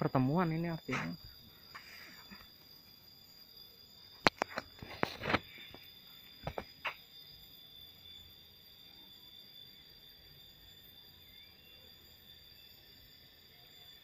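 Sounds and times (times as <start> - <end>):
high-pitched insect calls: 0.0 - 14.0
sharp clicks and knocks: 4.2 - 5.5.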